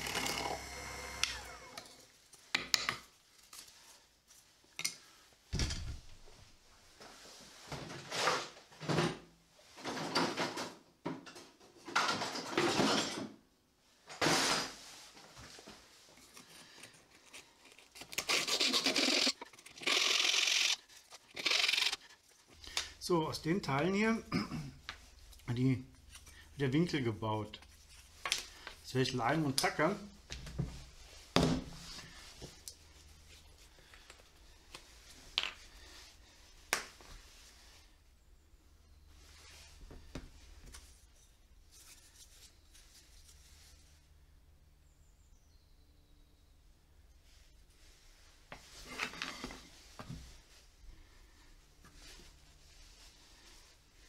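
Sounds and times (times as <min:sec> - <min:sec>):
wooden pieces clicking: 0:18.0 - 0:22.0.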